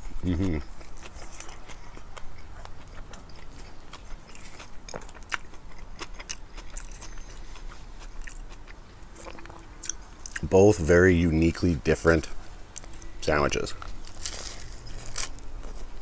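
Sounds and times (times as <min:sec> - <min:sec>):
mouth clicks and crunches: 0:00.0 - 0:10.5
chewing sandwich: 0:00.0 - 0:10.8, 0:13.8 - 0:16.0.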